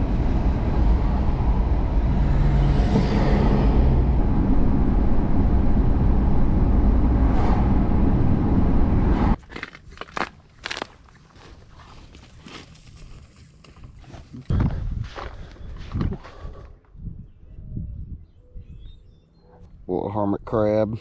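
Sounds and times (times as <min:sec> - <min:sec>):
car engine and tyre rumble: 0:00.0 - 0:16.2.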